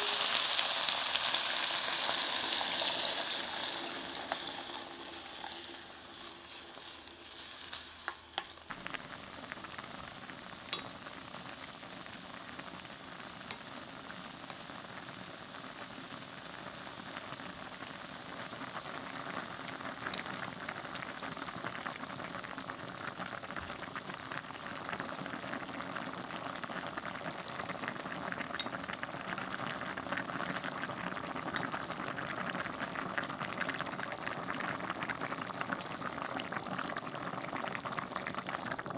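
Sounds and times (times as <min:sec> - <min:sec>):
stew bubbling: 0:02.4 - 0:38.9.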